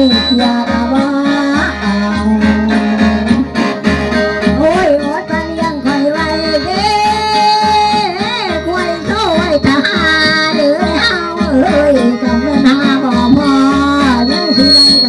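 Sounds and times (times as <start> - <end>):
person singing wavering melody: 0.0 - 3.5, 4.6 - 15.0
low beat: 8.6 - 15.0
reed drone of mouth organ: 8.7 - 15.0.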